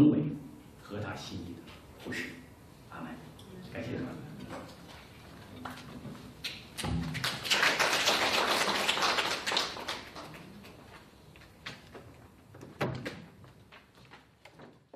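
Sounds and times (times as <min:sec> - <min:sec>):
audience applauding: 0:07.1 - 0:10.9.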